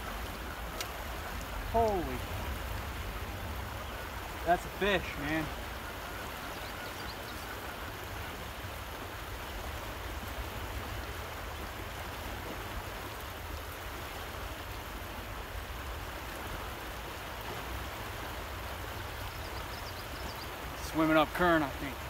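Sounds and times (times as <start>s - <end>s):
river current rushing: 0.0s - 22.0s.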